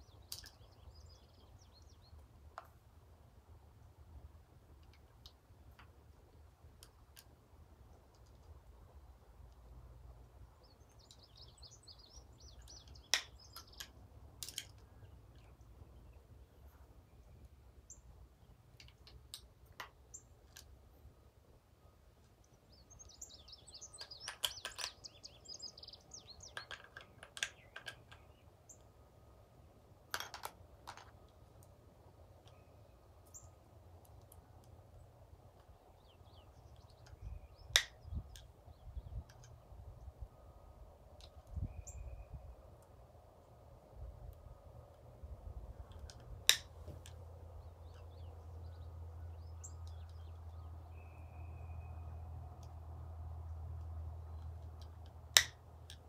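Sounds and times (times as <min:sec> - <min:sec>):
birds chirping: 0:00.0 - 0:02.4, 0:10.4 - 0:29.3, 0:32.2 - 0:43.0, 0:45.6 - 0:55.0
small metal clicks: 0:12.4 - 0:15.6, 0:23.8 - 0:25.2, 0:26.4 - 0:28.9, 0:45.8 - 0:47.2.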